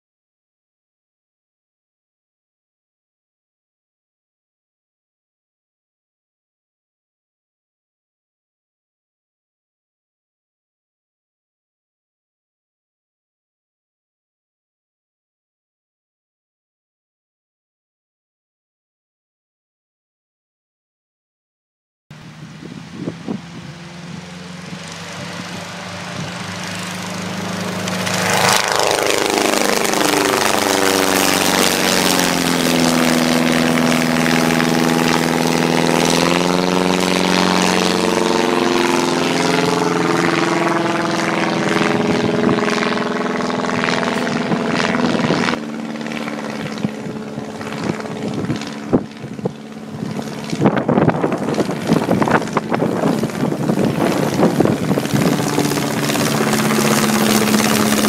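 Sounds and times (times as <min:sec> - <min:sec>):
autogyro engine and propeller drone: 0:22.1 - 0:58.0.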